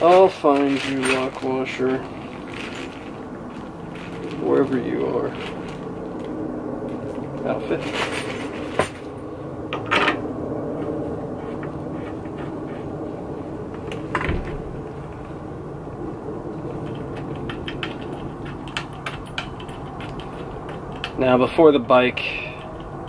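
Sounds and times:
steady background hum: 0.0 - 23.0
sharp metal clicks and knocks: 16.8 - 23.0.

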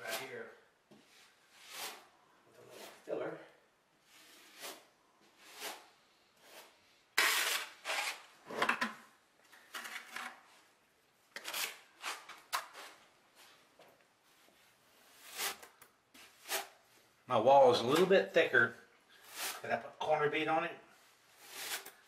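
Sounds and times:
steel trowel scraping mortar: 4.2 - 8.3, 21.4 - 22.0.

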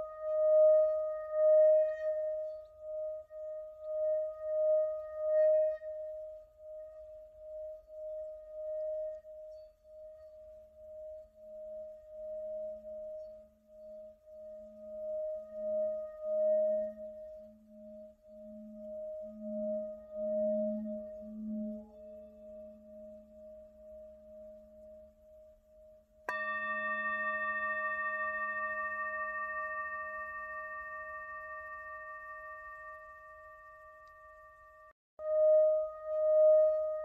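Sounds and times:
singing bowl ringing: 0.0 - 6.7, 7.4 - 25.1, 26.3 - 37.0
stick rubbing bowl rim hum: 26.3 - 34.8.

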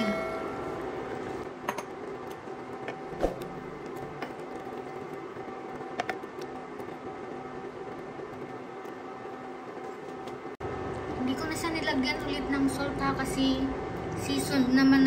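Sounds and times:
steady background hum: 0.0 - 15.0
stew simmering: 1.2 - 11.1.

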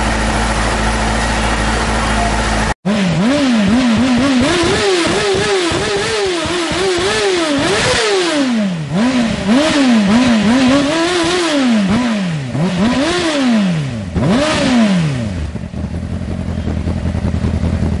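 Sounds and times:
motorcycle engine idling: 0.0 - 7.8, 13.9 - 18.0
motorcycle engine revving: 0.0 - 18.0.

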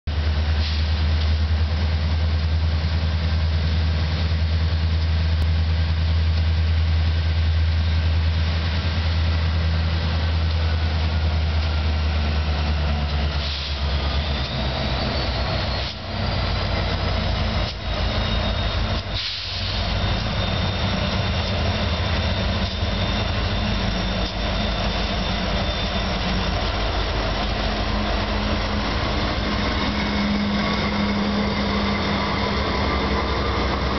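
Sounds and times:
train rumble: 0.0 - 33.9
diesel locomotive droning: 0.1 - 33.9
high ringing from rails: 9.6 - 33.9.

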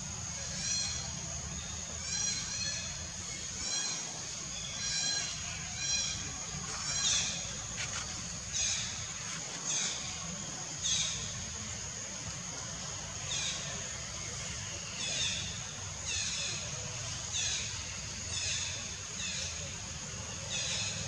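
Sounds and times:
high insect drone: 0.0 - 21.0.

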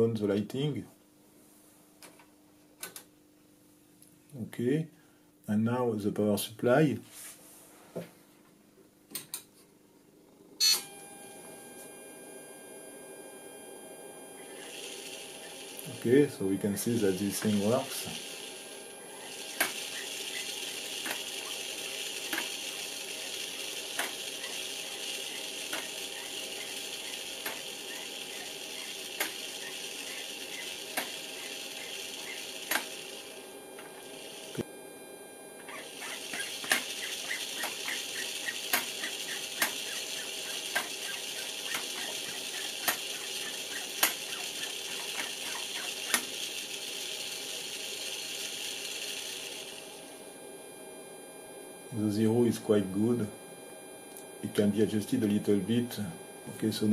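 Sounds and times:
servo motor whirring: 17.1 - 34.6, 35.6 - 49.7.

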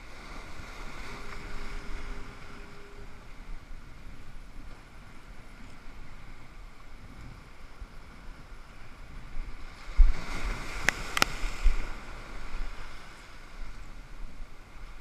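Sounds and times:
wind thumps on microphone: 9.2 - 12.8.

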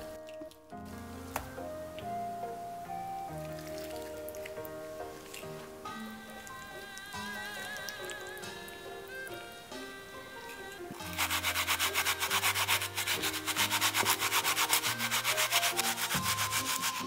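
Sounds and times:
background music: 0.0 - 17.0
onion grated on glass grater: 10.4 - 17.0.

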